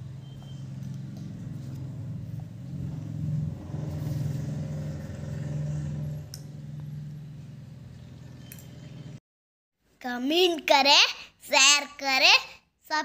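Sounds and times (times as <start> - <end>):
vehicle engine hum: 0.0 - 9.2.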